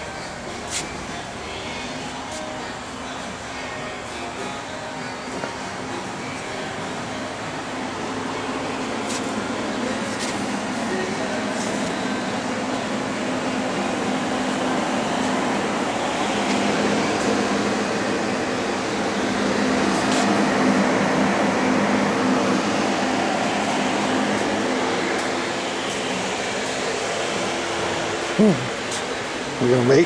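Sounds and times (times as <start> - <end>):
machinery hum with hiss: 0.0 - 30.0.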